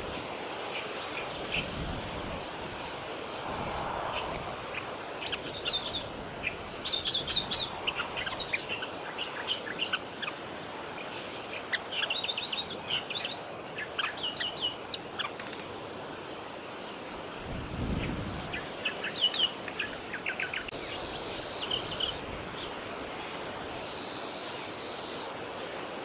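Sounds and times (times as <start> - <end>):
outdoor hiss: 0.0 - 26.0
nestlings peeping: 4.2 - 15.7.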